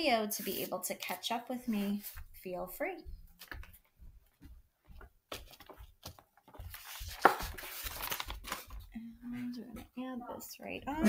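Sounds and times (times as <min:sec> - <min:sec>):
paper rustling: 0:05.3 - 0:08.9.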